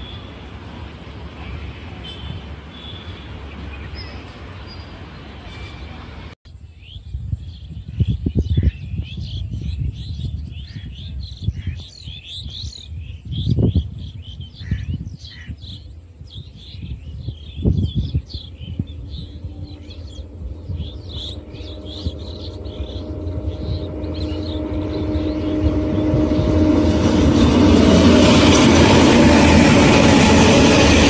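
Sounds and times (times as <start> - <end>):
distant locomotive hum: 0.0 - 7.0, 7.8 - 31.0
wind buffeting microphone: 0.0 - 31.0
small birds chirping: 1.4 - 25.6.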